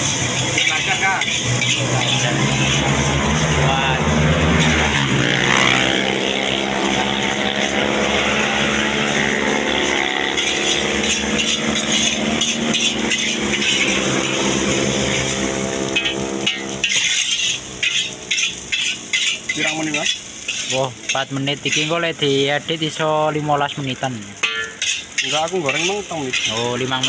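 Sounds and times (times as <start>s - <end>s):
motor engine running: 0.0s - 18.7s
spatula scraping a wok: 0.0s - 23.0s, 24.4s - 27.0s
stir-frying: 0.0s - 27.0s.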